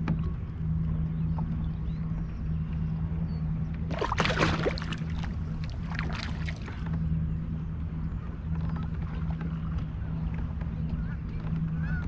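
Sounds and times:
steady low hum: 0:00.0 - 0:12.0
water splashing: 0:03.9 - 0:06.9.

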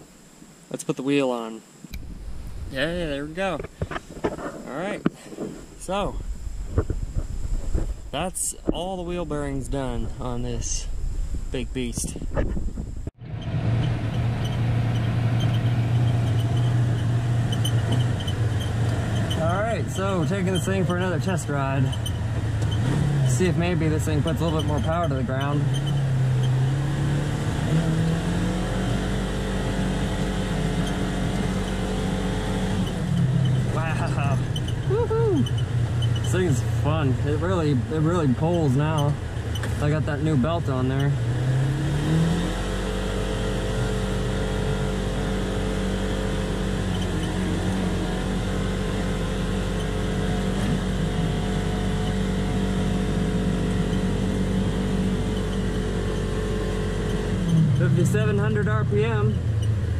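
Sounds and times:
wind noise: 0:01.9 - 0:14.1
utility vehicle engine accelerating: 0:13.2 - 0:59.9.

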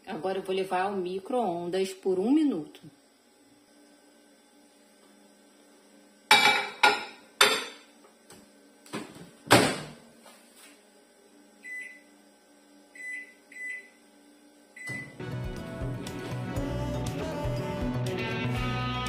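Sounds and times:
microwave keypad beeps: 0:11.6 - 0:12.1, 0:13.0 - 0:14.0, 0:14.8 - 0:15.2.

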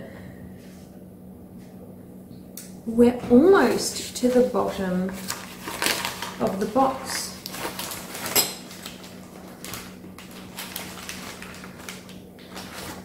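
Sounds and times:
newspaper packing rustling: 0:03.6 - 0:13.0.

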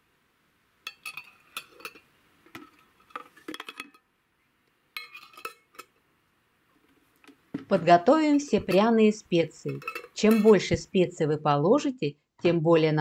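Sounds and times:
metal lids clinking on glass jars: 0:00.9 - 0:04.0, 0:05.0 - 0:06.0, 0:07.7 - 0:10.8.

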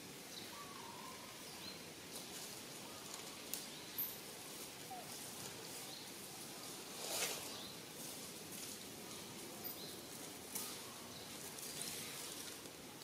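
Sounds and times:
faint steady hiss: 0:00.0 - 0:13.0
brief rustle: 0:06.8 - 0:08.8.

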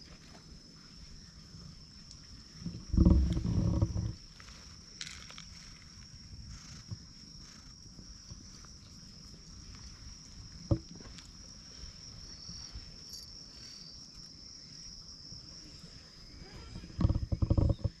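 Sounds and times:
low fluttering rumble: 0:02.4 - 0:10.0
high-pitched insect drone: 0:11.7 - 0:18.0.

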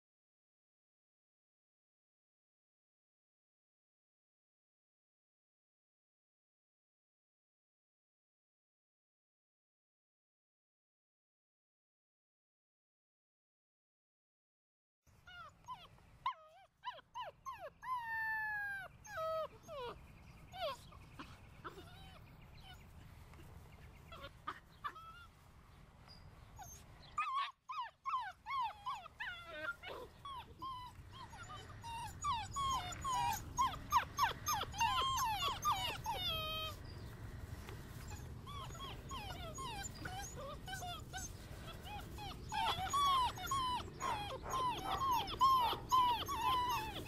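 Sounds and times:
puppies whining and whimpering: 0:15.3 - 0:23.5, 0:24.1 - 0:25.3, 0:26.6 - 0:37.0, 0:37.9 - 0:47.0.

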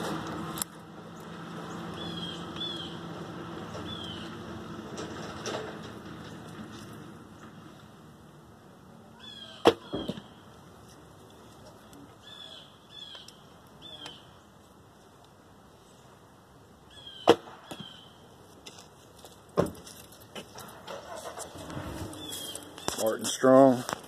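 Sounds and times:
birds chirping: 0:01.0 - 0:04.6, 0:09.1 - 0:10.6, 0:11.4 - 0:14.7, 0:15.8 - 0:18.4, 0:20.4 - 0:24.0
arrow striking target: 0:17.2 - 0:17.8.

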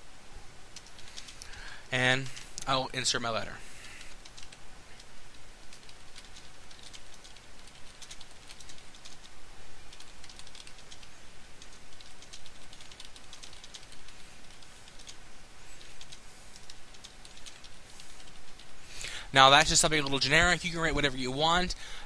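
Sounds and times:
steady hiss: 0:00.0 - 0:22.0
computer keyboard typing: 0:00.8 - 0:01.6, 0:04.0 - 0:15.2, 0:15.8 - 0:18.7.

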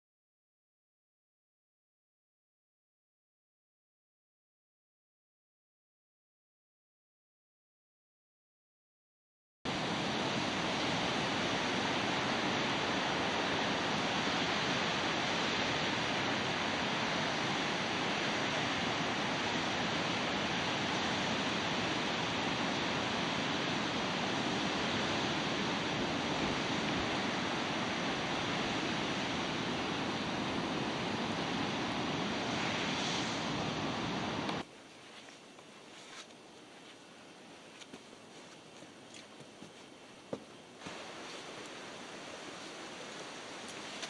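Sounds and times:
ocean surf rushing: 0:09.7 - 0:34.7, 0:40.8 - 0:44.0.

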